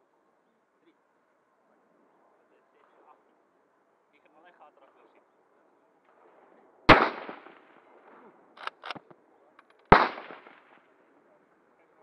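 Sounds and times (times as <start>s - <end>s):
rifle shots echoing: 6.2s - 9.1s, 9.8s - 10.9s.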